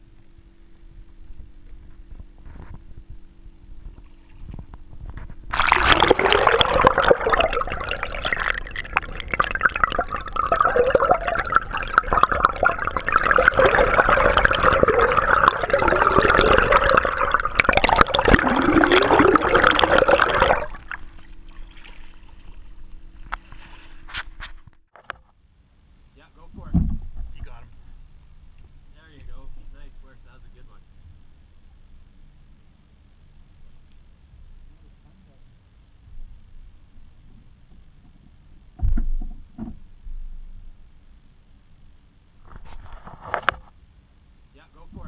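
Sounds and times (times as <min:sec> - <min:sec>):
crackling clicks: 0:03.8 - 0:25.3, 0:33.7 - 0:34.1
underwater water rushing: 0:05.5 - 0:22.8.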